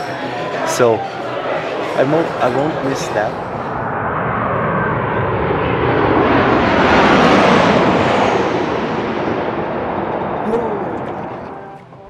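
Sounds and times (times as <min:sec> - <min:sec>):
airplane passing overhead: 0:00.0 - 0:12.0.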